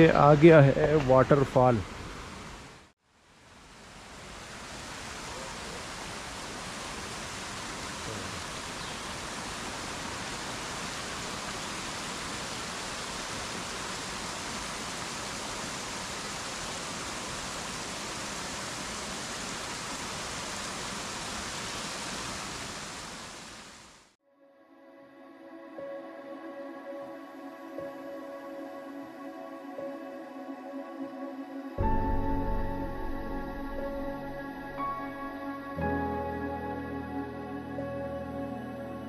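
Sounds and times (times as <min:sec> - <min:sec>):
waterfall rushing over boulders: 0:00.0 - 0:24.2.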